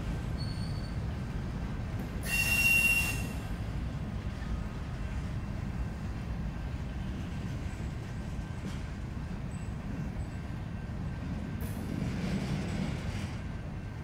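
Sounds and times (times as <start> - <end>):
train cars rolling past: 0.0 - 14.0
wheel squeal: 0.4 - 1.0.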